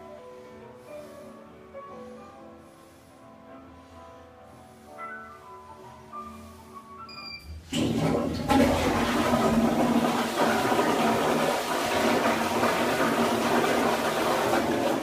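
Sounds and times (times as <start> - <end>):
toilet flushing water rush: 7.6 - 15.0.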